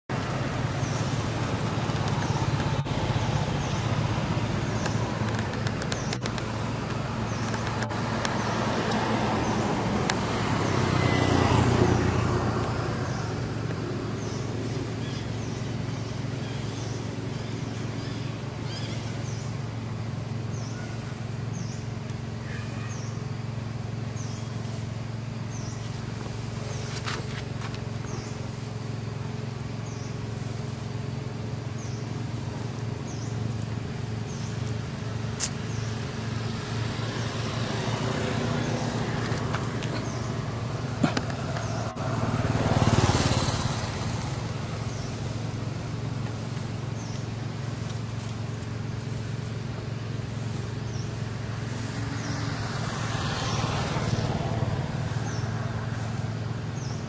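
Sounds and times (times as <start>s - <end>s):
low motor hum: 0.0s - 57.0s
vehicle passing: 0.1s - 20.0s, 31.8s - 57.0s.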